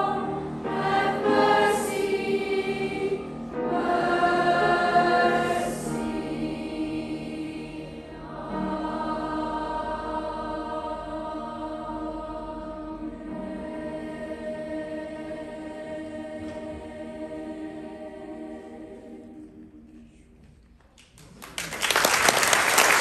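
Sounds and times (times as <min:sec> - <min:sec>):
children's choir singing: 0:00.0 - 0:20.3
audience applause: 0:21.2 - 0:23.0.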